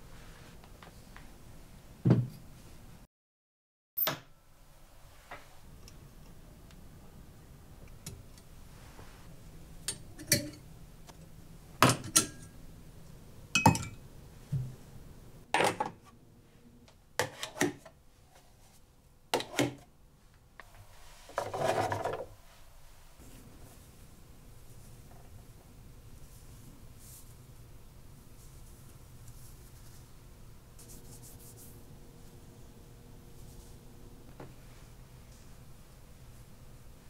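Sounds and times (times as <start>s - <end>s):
ceramic mugs clinking on rail: 13.6s - 14.0s.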